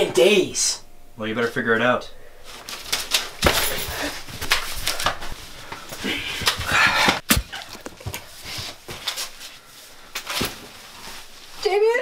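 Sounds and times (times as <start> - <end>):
person breathing hard and straining: 5.5 - 7.8.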